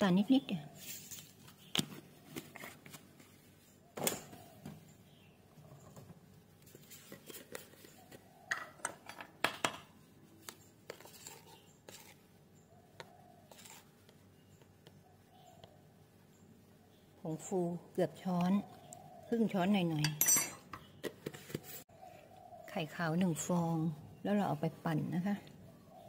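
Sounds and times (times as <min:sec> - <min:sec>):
kitchen utensils clinking: 0:20.0 - 0:20.8.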